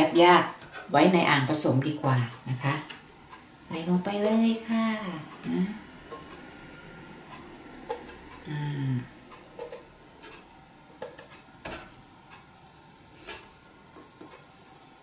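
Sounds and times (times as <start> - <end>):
dough balls tapping in metal bowl: 7.4 - 15.0.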